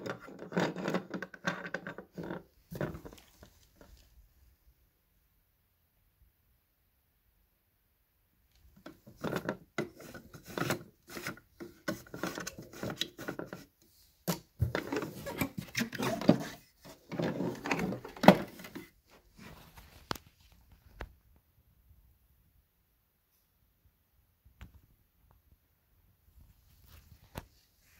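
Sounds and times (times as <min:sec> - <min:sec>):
vacuum cleaner handling noise: 0:14.3 - 0:18.9.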